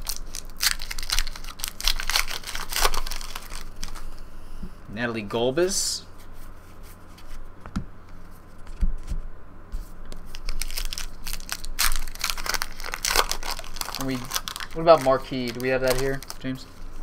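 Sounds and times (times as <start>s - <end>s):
foil wrapper tearing and crinkling: 0.0s - 4.1s, 10.2s - 17.0s.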